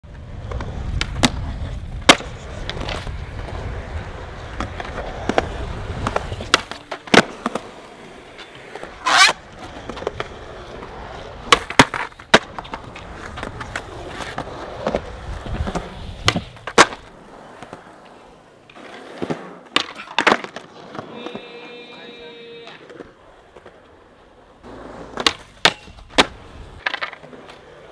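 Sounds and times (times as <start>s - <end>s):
skateboard wheels rolling on concrete: 0.0s - 27.9s
skateboard popping and landing: 0.1s - 27.9s
skateboard scrape: 0.1s - 27.9s.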